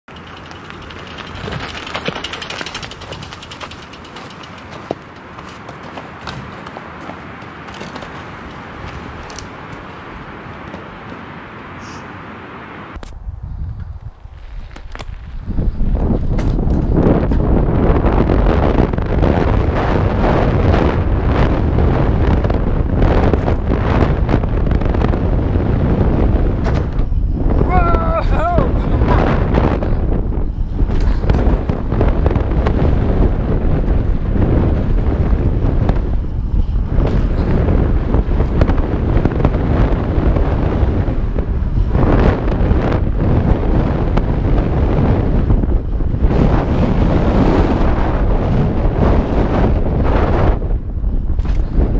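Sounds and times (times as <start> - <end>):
bike tyres on dirt: 0.0 - 51.9
bike knocks and rattles: 0.1 - 11.2, 13.8 - 18.0, 21.5 - 27.8, 28.9 - 47.8, 51.2 - 51.9
wind buffeting microphone: 0.1 - 51.9.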